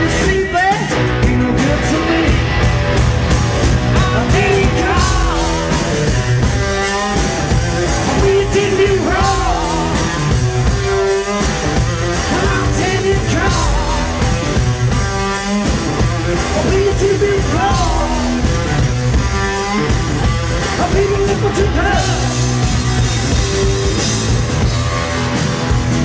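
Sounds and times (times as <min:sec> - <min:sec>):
drum kit: 0:00.0 - 0:26.0
electric guitar riff: 0:00.0 - 0:26.0.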